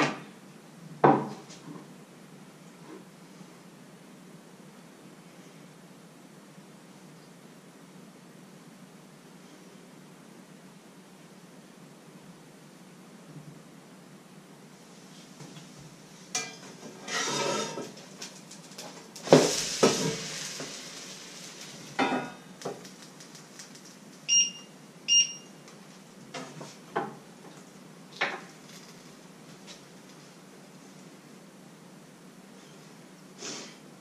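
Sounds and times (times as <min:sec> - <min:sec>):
spatula scraping frying pan: 0:16.4 - 0:18.0
short electronic beeps: 0:24.3 - 0:25.5.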